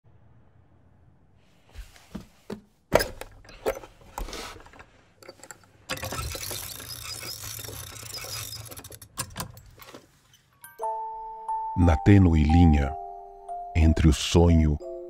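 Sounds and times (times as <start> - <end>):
winding crank ratcheting clicks: 5.9 - 9.5.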